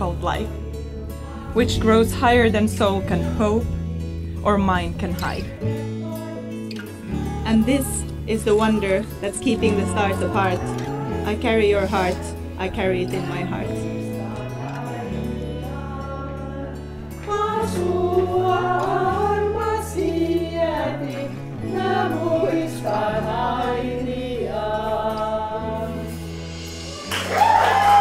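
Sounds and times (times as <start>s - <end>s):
slow song with singing: 0.0s - 28.0s
people clapping and cheering: 26.9s - 28.0s.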